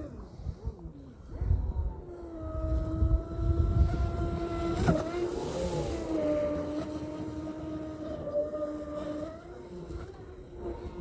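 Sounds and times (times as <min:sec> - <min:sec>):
rc boat motor whining: 0:00.0 - 0:11.0.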